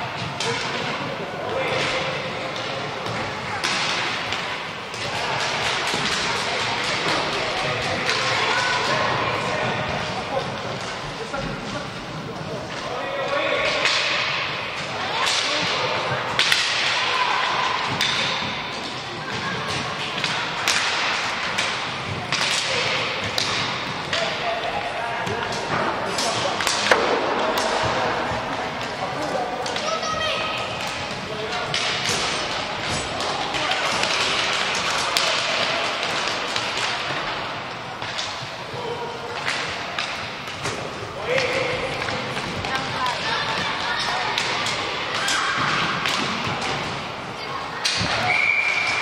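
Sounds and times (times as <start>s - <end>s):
hockey sticks clacking: 0.0s - 49.0s
players shouting: 12.8s - 37.3s
sticks cracking on puck: 30.8s - 37.3s.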